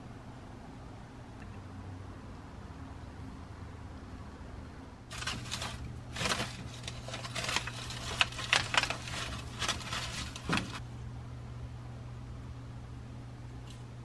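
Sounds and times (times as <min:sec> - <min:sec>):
steady low hum: 0:04.0 - 0:14.0
plastic bag crinkling: 0:05.1 - 0:10.8
sharp crackles: 0:05.1 - 0:10.8.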